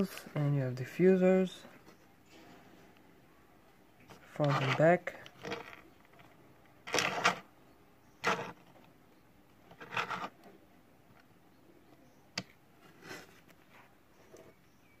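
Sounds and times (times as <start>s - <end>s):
toy car rolling on a mat: 4.1s - 7.5s, 8.2s - 8.9s, 9.7s - 10.4s.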